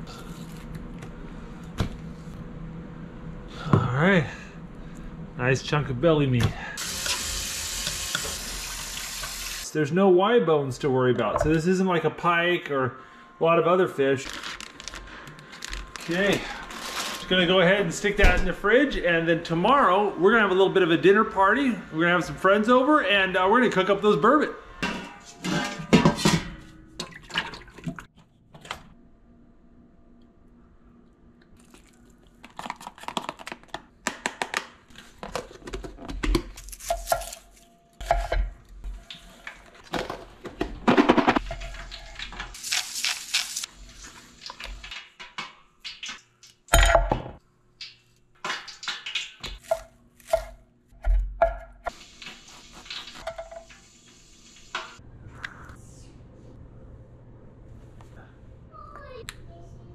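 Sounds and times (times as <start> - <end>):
pots and dishes clattering: 24.8 - 27.9, 52.9 - 53.7.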